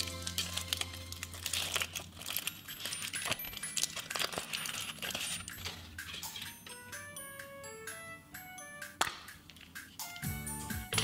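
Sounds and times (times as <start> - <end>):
foil wrapper crinkling: 0.0 - 6.5.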